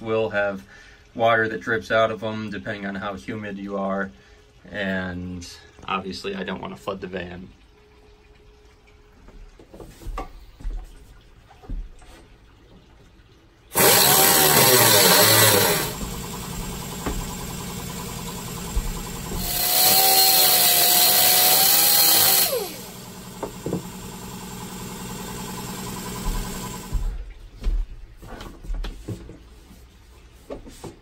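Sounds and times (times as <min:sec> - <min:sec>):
pneumatic cut-off tool whine: 0:13.7 - 0:27.2
steady running sound: 0:13.7 - 0:27.3.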